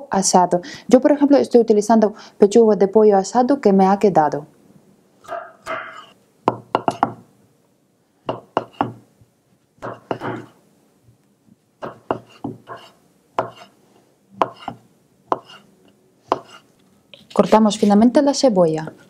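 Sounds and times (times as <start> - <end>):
knife chopping on wooden board: 5.3 - 7.2, 8.3 - 9.0, 9.8 - 10.5, 11.8 - 13.7, 14.4 - 15.7, 16.3 - 16.6.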